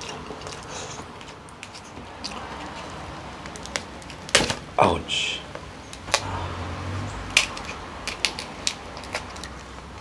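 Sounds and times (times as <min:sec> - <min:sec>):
crab shell cracking: 0:07.3 - 0:09.6.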